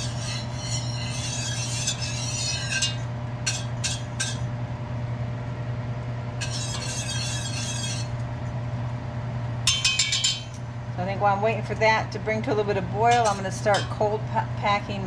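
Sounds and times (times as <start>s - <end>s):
wire whisk clinking in metal pot: 0.0s - 4.4s, 6.4s - 8.1s, 9.7s - 10.6s, 13.1s - 14.1s
steady low hum: 0.0s - 15.0s.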